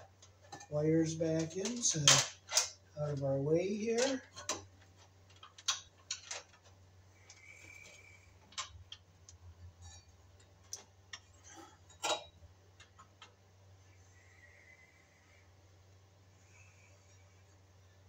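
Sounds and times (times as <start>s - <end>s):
faint low hum: 0.0s - 18.0s
clicks and light knocks: 4.0s - 13.4s.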